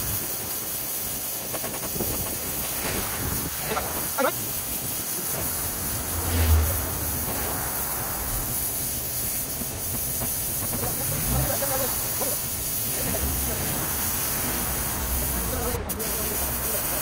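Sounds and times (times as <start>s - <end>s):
pressure washer spray hissing: 0.0s - 17.0s.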